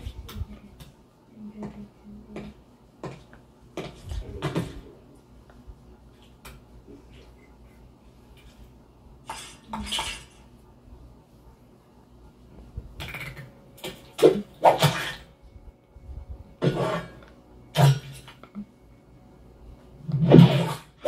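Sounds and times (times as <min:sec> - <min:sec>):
dishes and cutlery clattering: 0:09.2 - 0:10.5.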